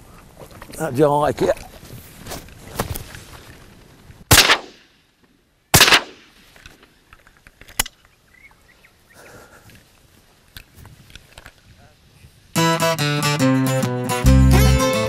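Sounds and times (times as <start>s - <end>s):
sharp quiet crack: 4.3s - 4.9s, 5.8s - 8.1s
shotgun shots echoing: 4.3s - 4.9s, 5.8s - 6.4s.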